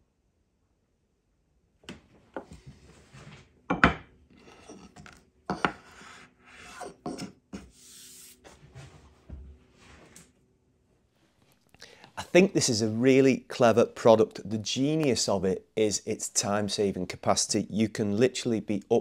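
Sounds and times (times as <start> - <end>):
scraping and rubbing on wood: 4.3 - 9.1.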